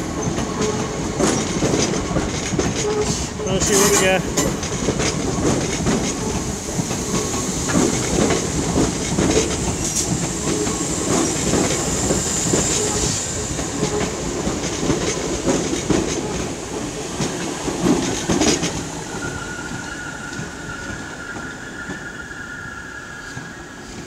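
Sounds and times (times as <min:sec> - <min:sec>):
train wheels clacking over points: 0:00.0 - 0:22.1
high wheel squeal: 0:18.9 - 0:24.0.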